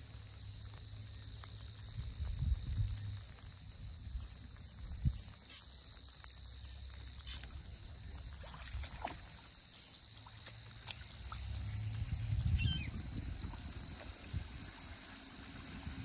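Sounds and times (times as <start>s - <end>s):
soft water sounds: 0.0s - 16.0s
low rumble: 11.2s - 16.0s.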